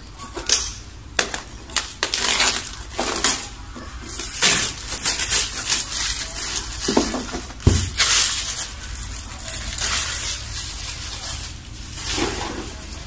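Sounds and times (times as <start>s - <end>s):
plastic wrap crinkling: 0.3s - 13.0s.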